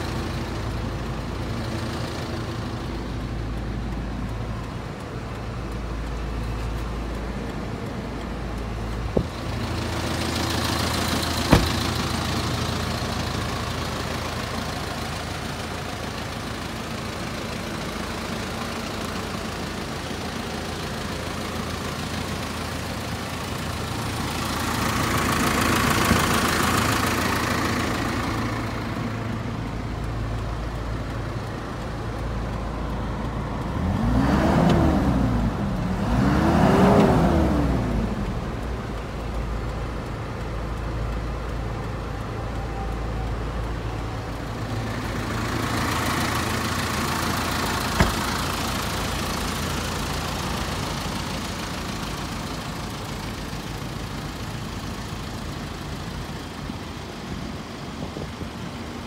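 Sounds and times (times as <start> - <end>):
truck engine idling: 0.0 - 59.0
sharp knocks: 11.4 - 11.9, 48.0 - 48.2.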